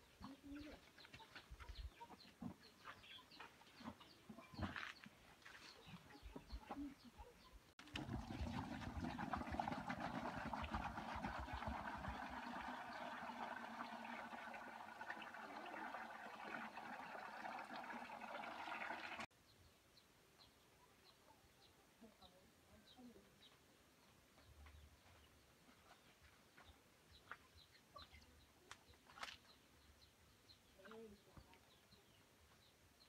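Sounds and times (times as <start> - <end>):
water pouring into plastic basin: 7.8 - 19.3.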